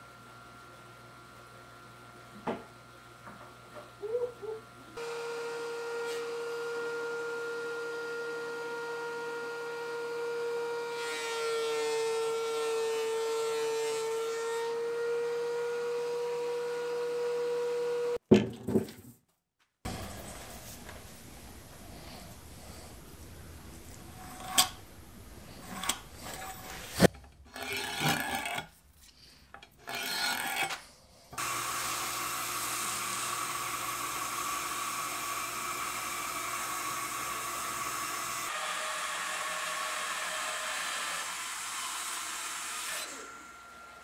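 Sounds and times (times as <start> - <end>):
bandsaw cutting wood: 25.5 - 28.7, 29.8 - 44.0.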